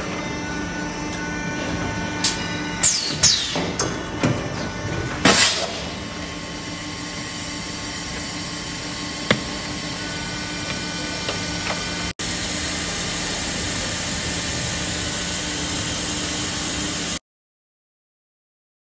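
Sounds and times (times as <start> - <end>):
machine humming and hissing: 0.0 - 17.2.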